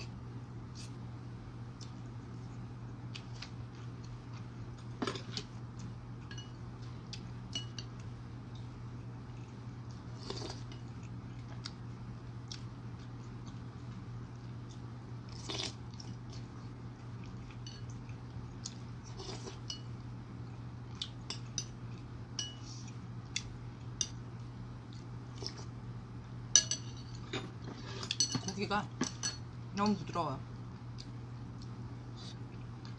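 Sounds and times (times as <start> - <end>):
soft eating noises: 0.0 - 32.9
steady low hum: 0.0 - 32.9
metal spoon clinking on ceramic bowl: 22.4 - 22.6, 26.6 - 27.2, 28.2 - 29.4.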